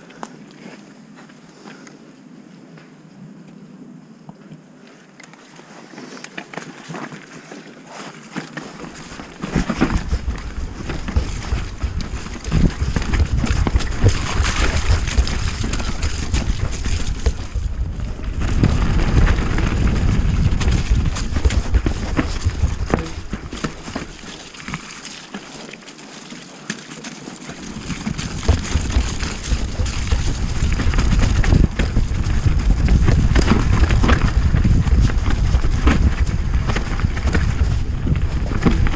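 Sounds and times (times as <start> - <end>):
bike tyres and frame clattering: 8.3 - 38.9
wind buffeting microphone: 9.1 - 24.3, 27.7 - 38.9.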